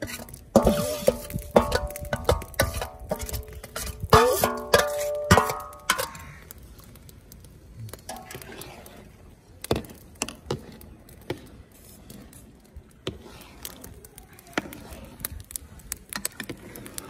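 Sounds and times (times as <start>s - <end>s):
spoon stirring rice in water: 0.0s - 6.1s, 13.0s - 13.9s
spoon clanging on steel pot: 0.1s - 6.2s.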